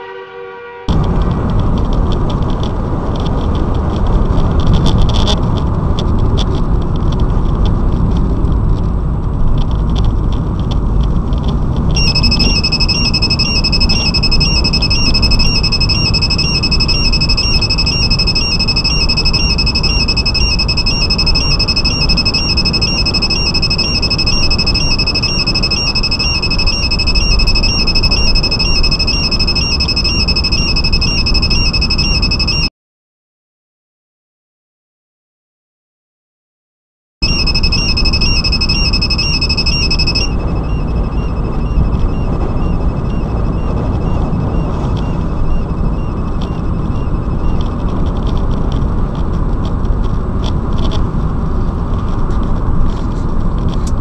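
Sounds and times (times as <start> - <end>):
car road and engine noise: 0.1 - 32.7, 37.2 - 54.0
rapidly pulsing high beeps: 12.0 - 32.7, 37.2 - 46.7.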